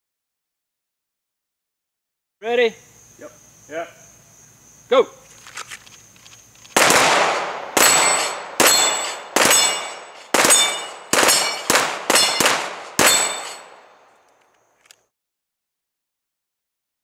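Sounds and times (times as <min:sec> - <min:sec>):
handgun shots: 0:06.7 - 0:13.9
steel plates clanging: 0:07.8 - 0:13.8.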